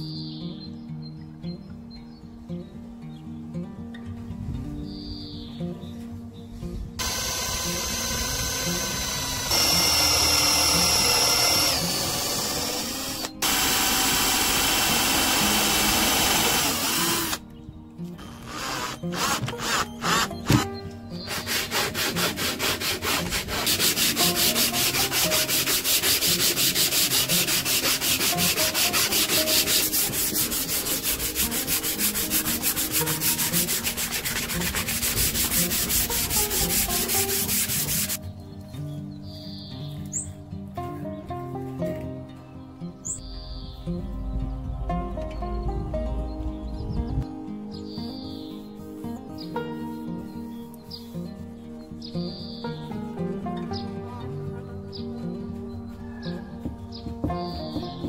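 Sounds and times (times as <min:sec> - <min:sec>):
electric drill boring into wood: 0:07.0 - 0:17.4, 0:18.2 - 0:20.6
sandpaper rubbing wood: 0:07.0 - 0:17.4, 0:18.3 - 0:38.2.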